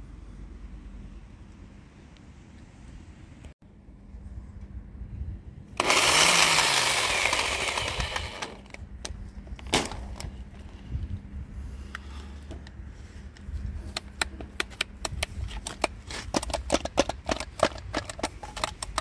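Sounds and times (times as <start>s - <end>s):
drill handled in metal trolley: 5.8s - 8.8s, 15.4s - 19.0s.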